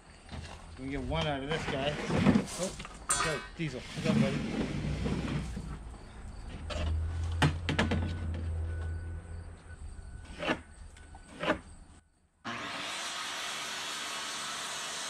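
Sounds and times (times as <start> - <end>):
circular saw running: 12.5 - 15.0.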